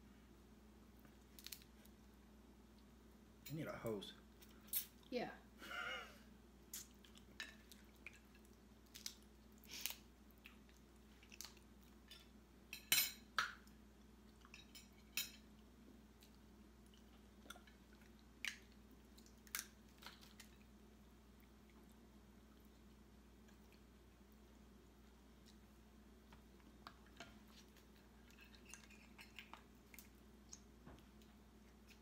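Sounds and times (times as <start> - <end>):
crab shell cracking: 1.3 - 1.7, 8.8 - 10.0
faint chewing: 6.6 - 12.4, 13.6 - 32.0.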